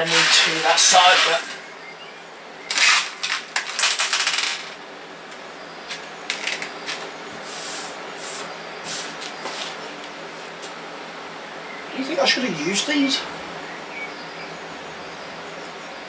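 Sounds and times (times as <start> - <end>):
metal screws clinking and rattling: 2.8 - 4.8.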